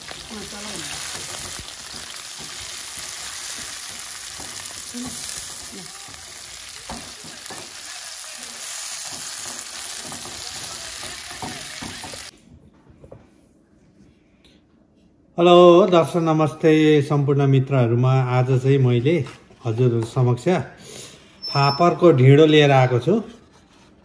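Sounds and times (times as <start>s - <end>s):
vegetables sizzling in hot oil: 0.0s - 12.3s
spatula scraping and tapping pan: 1.1s - 6.2s.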